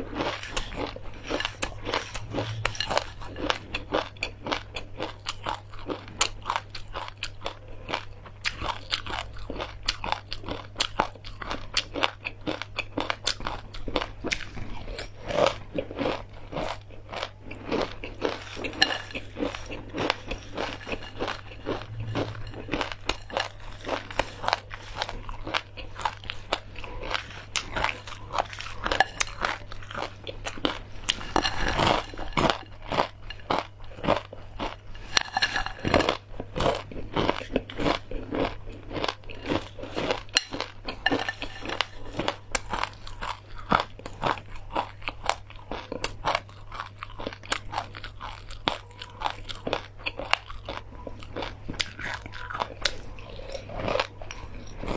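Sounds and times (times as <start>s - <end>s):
crunching and chewing crispy food: 0.0s - 54.9s
low steady hum: 0.0s - 54.9s.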